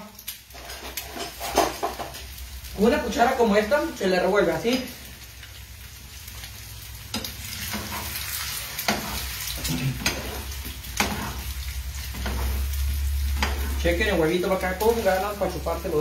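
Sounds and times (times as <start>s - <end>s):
food sizzling in oil: 0.0s - 16.0s
utensils knocking against pan: 11.0s - 11.4s.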